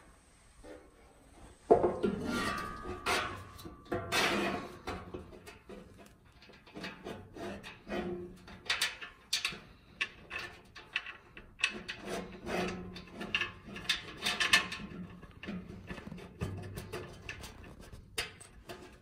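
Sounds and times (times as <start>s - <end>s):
metal shelf clicks and scrapes: 1.9s - 19.0s.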